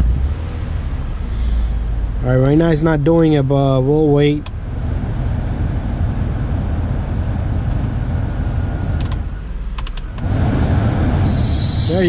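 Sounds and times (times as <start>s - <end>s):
car engine idling: 0.0s - 12.0s
heater blower fan: 4.6s - 9.2s, 10.1s - 12.0s.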